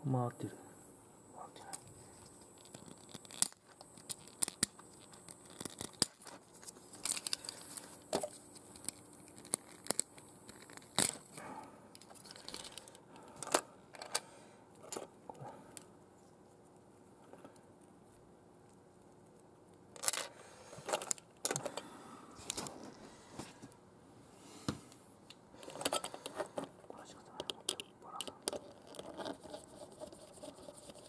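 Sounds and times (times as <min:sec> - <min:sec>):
plastic pieces clicking and rustling: 0:02.2 - 0:11.4, 0:12.0 - 0:14.2, 0:19.9 - 0:21.8, 0:25.6 - 0:26.6, 0:27.4 - 0:29.8.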